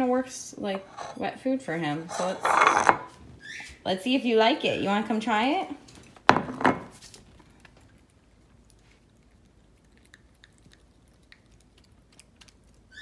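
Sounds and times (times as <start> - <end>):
dog chewing and licking: 7.0 - 13.0.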